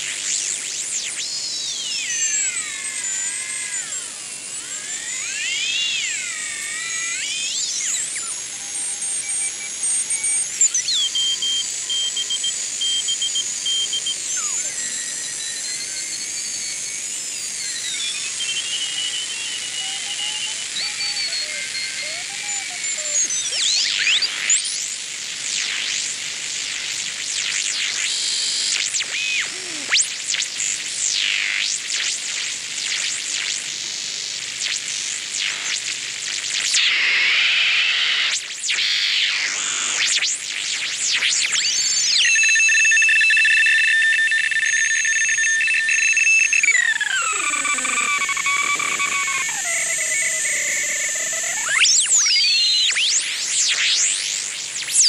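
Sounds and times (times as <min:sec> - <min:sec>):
radio hiss: 0:25.5 - 0:41.2, 0:43.8 - 0:54.8
gliding heterodyne whistles: 0:42.2 - 0:53.1.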